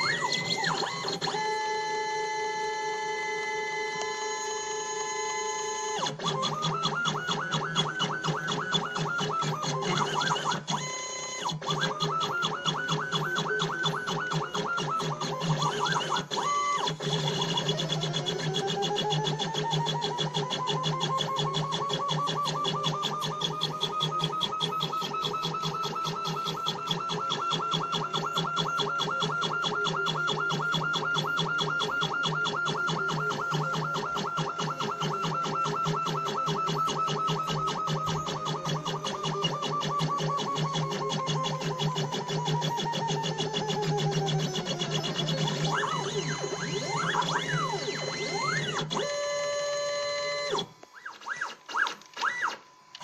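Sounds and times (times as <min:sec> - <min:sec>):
stepper motors whining: 0:00.0 - 0:53.0.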